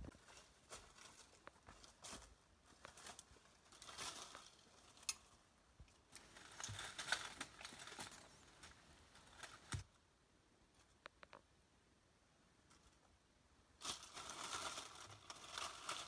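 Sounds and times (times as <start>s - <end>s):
dry leaves rustling and crackling: 0.0s - 5.3s, 6.1s - 9.9s, 13.8s - 16.0s.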